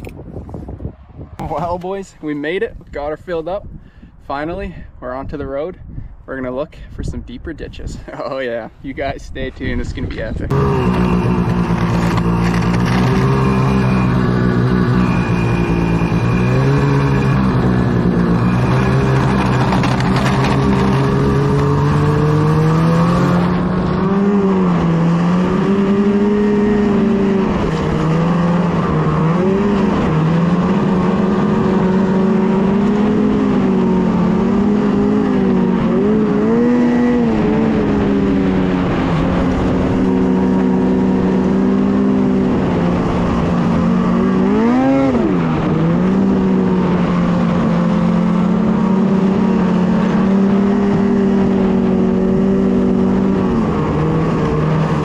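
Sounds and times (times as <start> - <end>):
snowmobile engine revving: 10.5 - 55.0.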